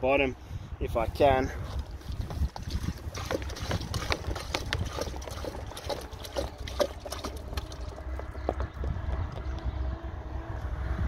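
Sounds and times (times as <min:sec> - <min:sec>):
syrup glugging from bottle: 0:01.7 - 0:08.3.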